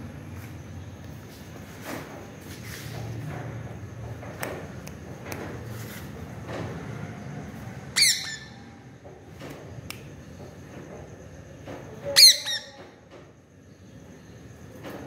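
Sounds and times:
parakeet squawking: 0:08.0 - 0:08.6, 0:12.2 - 0:12.8.

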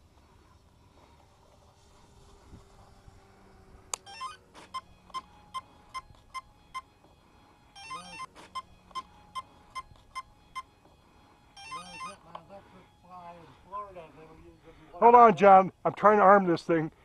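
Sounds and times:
stepped arming tones: 0:00.0 - 0:16.9
steady beeping: 0:03.4 - 0:16.6.

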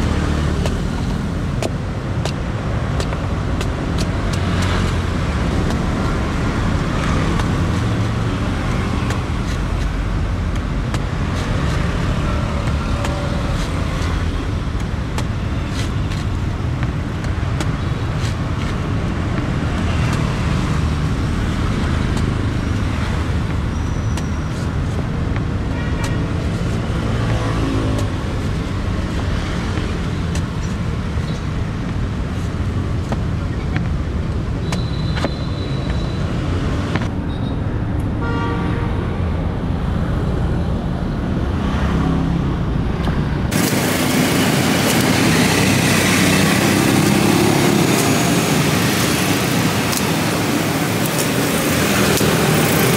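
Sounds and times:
road traffic: 0:00.0 - 0:52.9
cleaver chopping coconut husk: 0:00.1 - 0:31.2.

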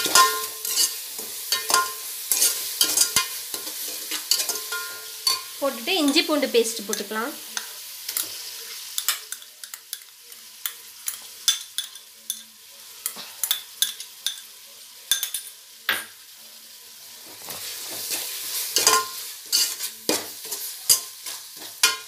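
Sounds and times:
ladle scraping and clinking pot: 0:00.0 - 0:05.5, 0:18.8 - 0:22.0
onions sizzling in oil: 0:00.0 - 0:22.0.

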